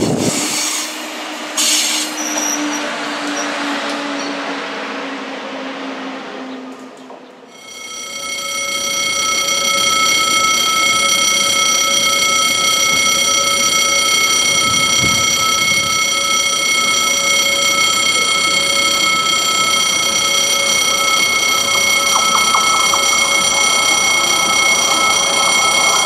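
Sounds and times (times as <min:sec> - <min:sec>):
level crossing warning bell: 0:07.5 - 0:26.0.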